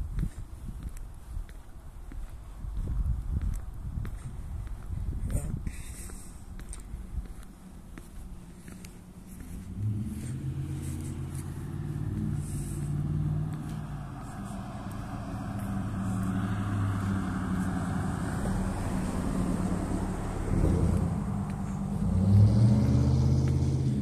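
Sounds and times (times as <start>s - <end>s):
car driving past: 9.4s - 24.0s.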